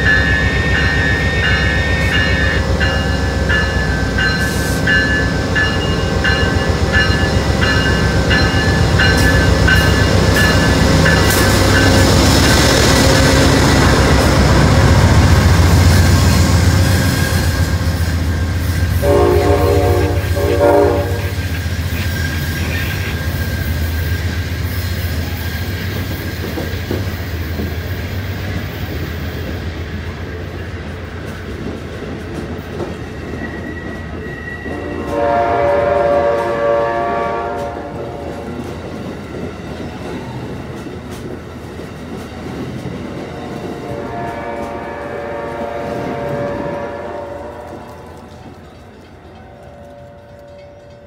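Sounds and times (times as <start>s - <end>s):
train horn blast: 0.0s - 5.2s, 7.9s - 15.3s, 18.9s - 21.6s, 34.6s - 38.6s, 43.8s - 48.2s.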